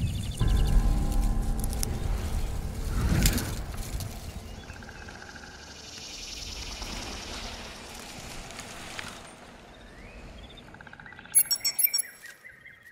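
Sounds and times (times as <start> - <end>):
small birds chirping: 9.7 - 12.9.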